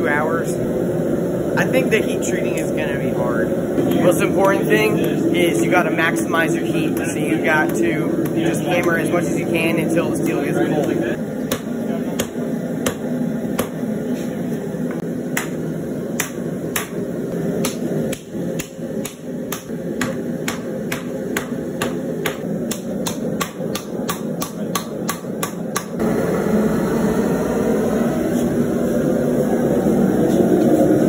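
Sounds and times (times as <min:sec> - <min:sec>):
hammer striking steel on anvil: 0:16.2 - 0:17.0, 0:17.6 - 0:26.0.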